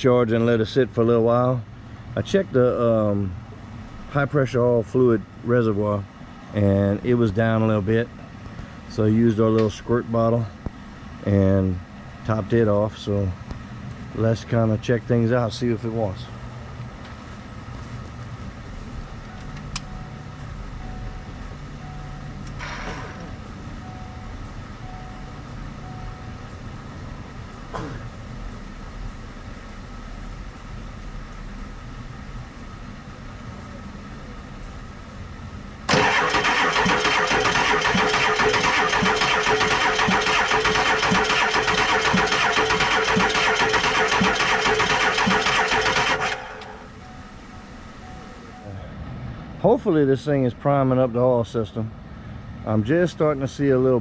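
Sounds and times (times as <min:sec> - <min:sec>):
diesel engine cranking: 0:35.8 - 0:48.7.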